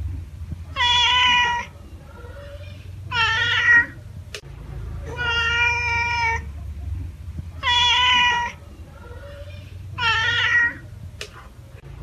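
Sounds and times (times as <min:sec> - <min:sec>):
cat meowing: 0:00.7 - 0:04.0, 0:05.1 - 0:06.5, 0:07.6 - 0:10.9.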